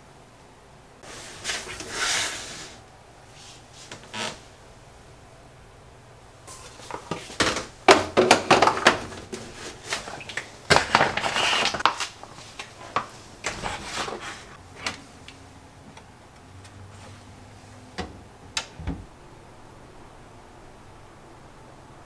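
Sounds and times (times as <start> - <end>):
household items knocking and clicking: 7.0 - 9.4.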